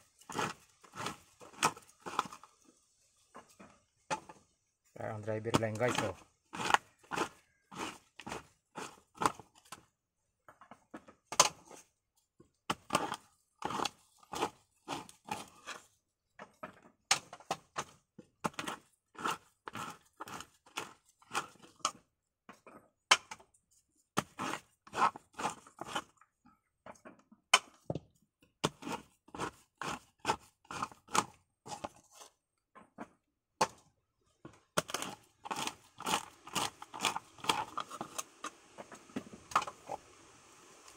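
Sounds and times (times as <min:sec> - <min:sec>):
coconut meat cracking and scraping: 0:00.0 - 0:02.7, 0:03.3 - 0:09.9, 0:11.3 - 0:11.9, 0:12.6 - 0:22.1, 0:23.1 - 0:26.3, 0:28.5 - 0:33.0, 0:34.7 - 0:40.1.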